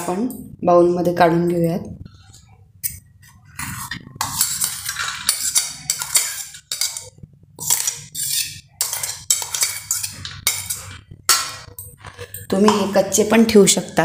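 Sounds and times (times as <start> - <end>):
steel spoon scraping metal jar: 3.6 - 13.3.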